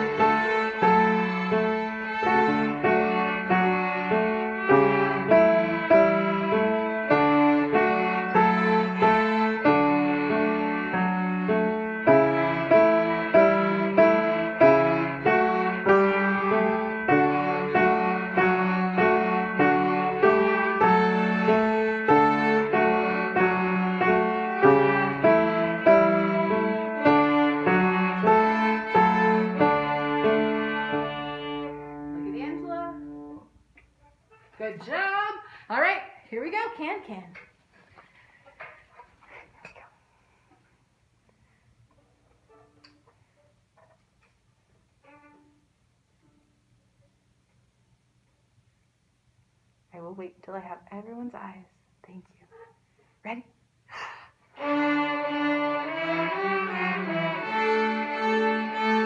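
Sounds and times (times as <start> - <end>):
string orchestra playing: 0.0 - 32.5, 54.6 - 59.0.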